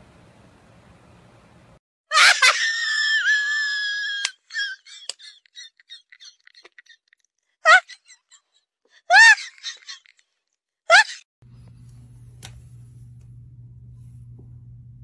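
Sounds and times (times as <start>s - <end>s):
loud high-pitched scream: 2.1s - 4.8s.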